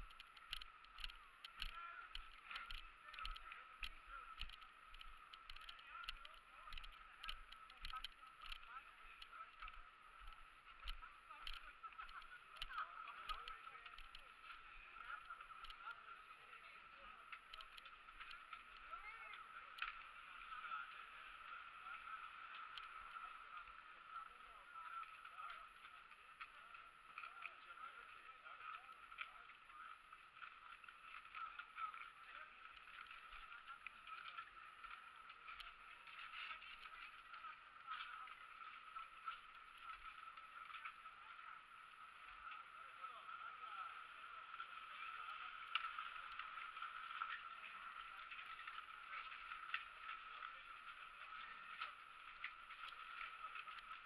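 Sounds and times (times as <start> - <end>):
light clicks: 0.0 - 16.0
distant voices talking: 0.0 - 54.0.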